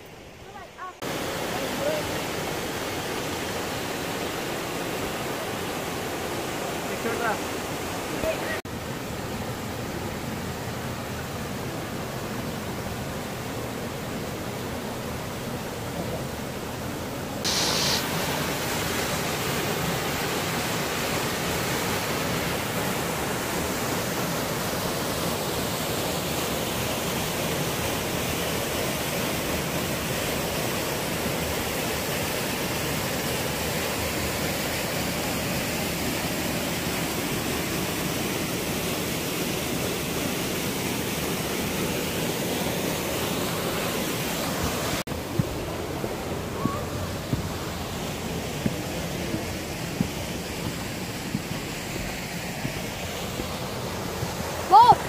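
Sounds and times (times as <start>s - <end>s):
waterfall rushing: 0.0s - 55.0s.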